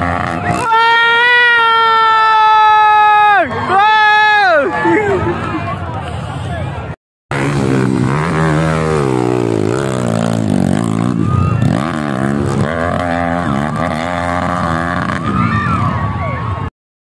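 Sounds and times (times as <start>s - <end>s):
dirt bike engine revving: 0.0s - 1.0s, 7.3s - 15.8s.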